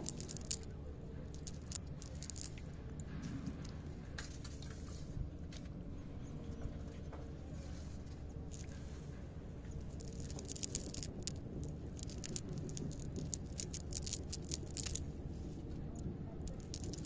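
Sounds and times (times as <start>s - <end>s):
wet fishing net crackling: 0.0s - 0.7s.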